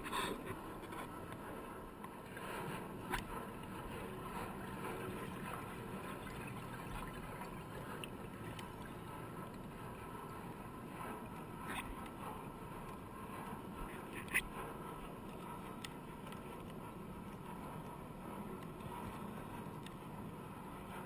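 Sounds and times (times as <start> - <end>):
muffled underwater rush: 1.5 - 16.2.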